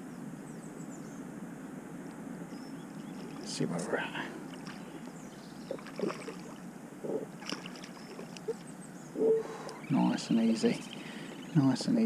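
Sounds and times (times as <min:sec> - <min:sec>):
wind: 0:00.0 - 0:12.0
water: 0:02.5 - 0:12.0
fish splashing at water surface: 0:05.8 - 0:06.6, 0:07.4 - 0:08.4.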